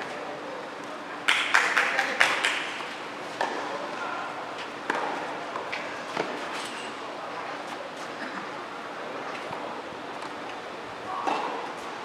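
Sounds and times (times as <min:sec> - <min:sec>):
tennis balls struck and bouncing: 0:04.9 - 0:06.4, 0:11.2 - 0:11.7.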